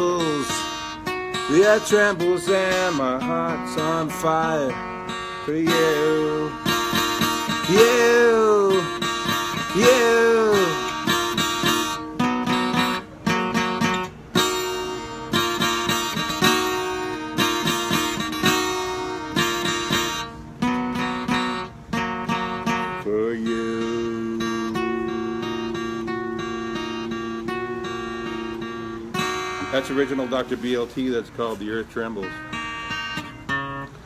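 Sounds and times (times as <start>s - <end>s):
man singing: 0.0s - 11.4s, 22.6s - 30.9s
acoustic guitar strumming: 0.0s - 34.0s.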